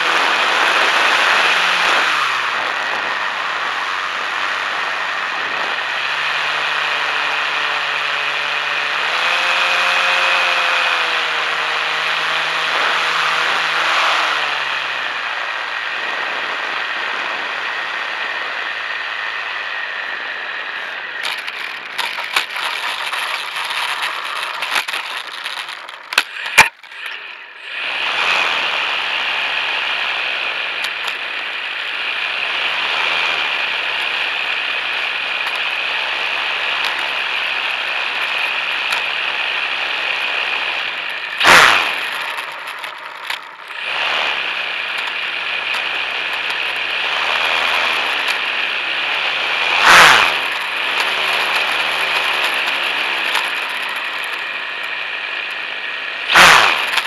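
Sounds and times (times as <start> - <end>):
electric motor whine: 0.0 - 57.0
high-pitched hum: 0.0 - 57.0
sharp crack: 20.8 - 27.6, 40.9 - 48.5, 49.4 - 57.0
plane clicking and rattling: 21.2 - 27.4, 30.8 - 31.3, 41.1 - 44.1, 50.4 - 54.9, 56.8 - 57.0
loud burst: 41.2 - 46.4, 49.8 - 57.0.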